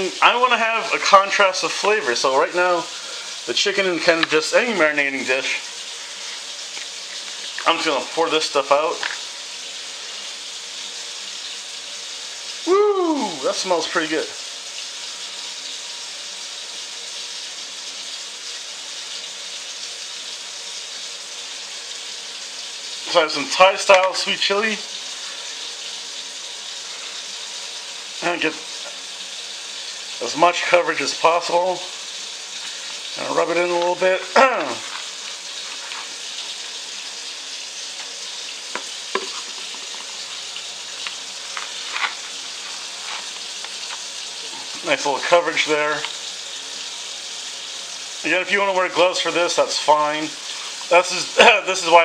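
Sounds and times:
kitchen tap running: 0:00.0 - 0:52.0
tap running into sink: 0:04.0 - 0:04.4, 0:08.9 - 0:09.3, 0:38.0 - 0:40.2.

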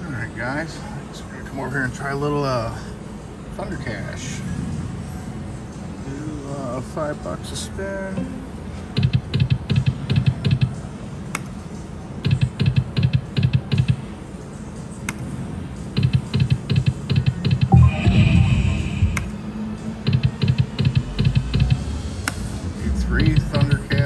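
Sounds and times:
steady background hum: 0:00.0 - 0:24.0
held high tone: 0:17.7 - 0:19.4.

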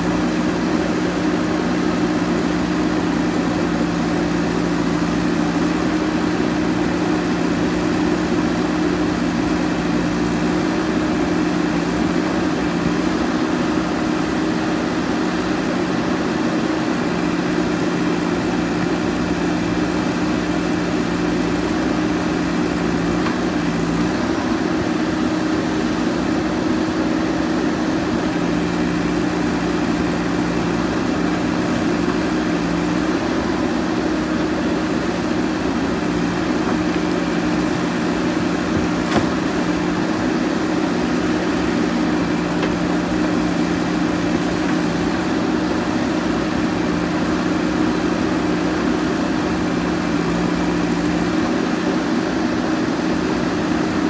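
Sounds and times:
backhoe digging soil: 0:00.0 - 0:54.0
diesel engine running: 0:00.0 - 0:54.0.

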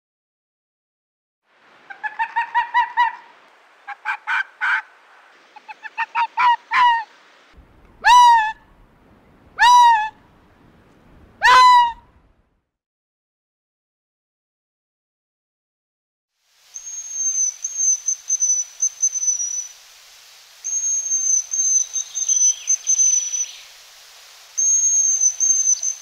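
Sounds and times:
fox calls rising in pitch: 0:01.9 - 0:04.9, 0:05.6 - 0:07.1, 0:08.0 - 0:08.7, 0:09.6 - 0:10.2, 0:11.4 - 0:12.1
fox yapping barks: 0:11.4 - 0:12.0.

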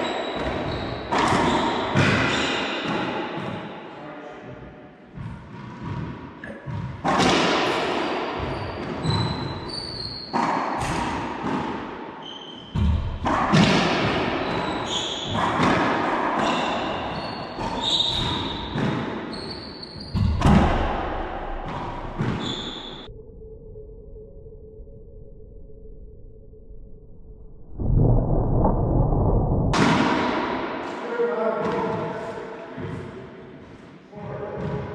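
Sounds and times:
sneakers squeaking on hardwood: 0:00.0 - 0:02.6, 0:08.4 - 0:10.5, 0:14.4 - 0:15.6, 0:16.4 - 0:20.8, 0:22.1 - 0:23.1
racquetball hits echoing: 0:00.0 - 0:03.9, 0:05.1 - 0:23.1, 0:29.7 - 0:34.9.

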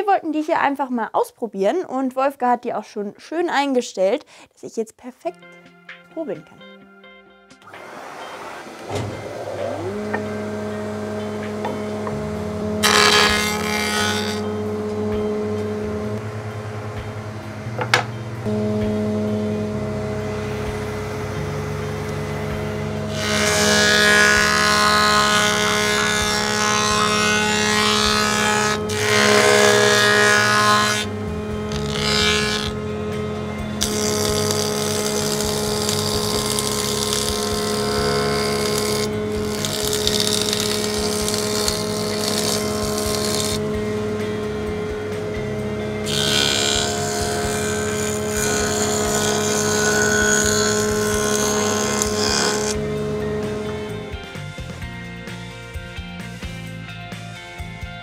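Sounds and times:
planer cutting board: 0:07.6 - 0:16.2, 0:17.8 - 0:54.1
machine humming: 0:07.6 - 0:54.5.

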